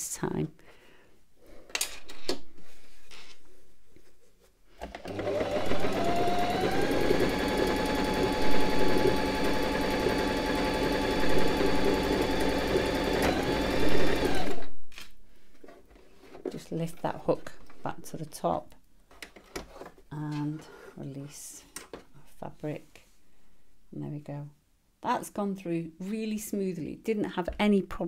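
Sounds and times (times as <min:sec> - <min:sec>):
sewing machine stitching: 0:04.8 - 0:14.7.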